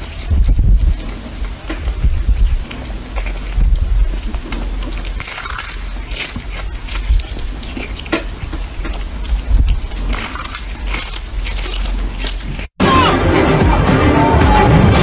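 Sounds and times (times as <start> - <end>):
cat crunching on fish: 0.0 - 12.8.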